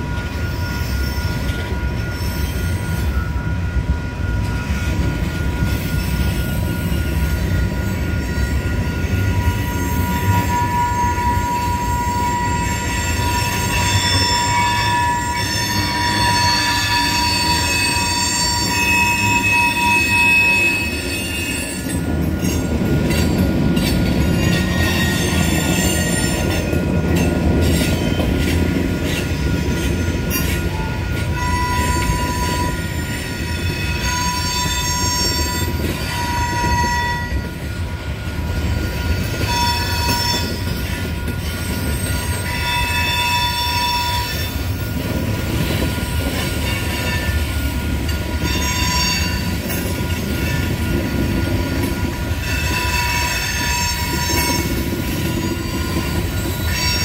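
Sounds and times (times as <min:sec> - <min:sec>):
train wheels rumbling on rail: 0:00.0 - 0:57.0
high-pitched wheel squeal: 0:04.4 - 0:23.3, 0:24.3 - 0:26.8, 0:29.1 - 0:37.5, 0:55.4 - 0:57.0.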